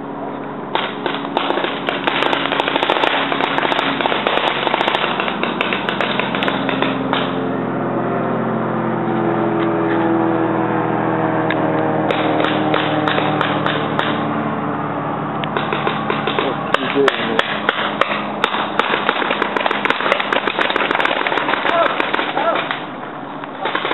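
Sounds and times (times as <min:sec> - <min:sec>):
steady droning sound: 0:00.0 - 0:23.6
paintball markers popping: 0:15.5 - 0:22.8.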